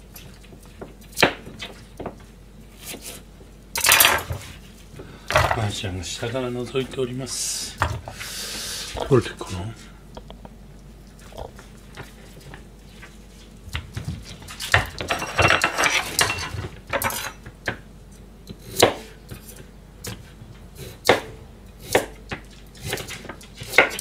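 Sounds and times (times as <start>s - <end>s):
kitchen utensils clattering: 14.8s - 17.5s
knife cutting vegetables: 21.8s - 24.0s.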